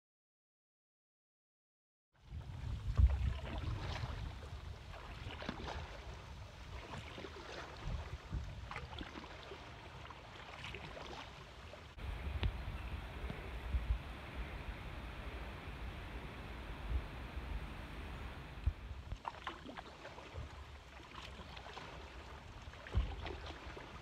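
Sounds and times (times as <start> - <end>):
wind rumble on microphone: 2.2 - 9.2, 11.9 - 19.3
paddle splashing in water: 2.2 - 24.0.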